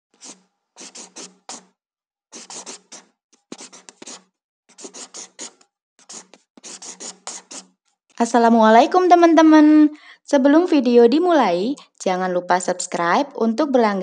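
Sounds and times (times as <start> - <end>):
marker scribbling on paper: 0.1 - 1.7, 2.3 - 7.7.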